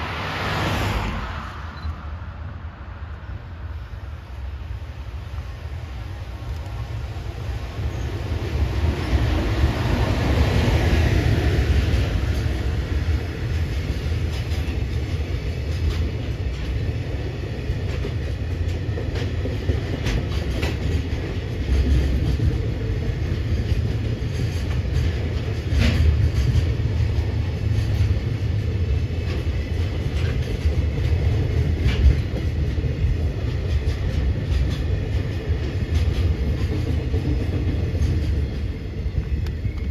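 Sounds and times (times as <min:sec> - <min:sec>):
freight train rolling past: 0:00.0 - 0:39.9
sharp clicks of train wheels: 0:05.2 - 0:39.9.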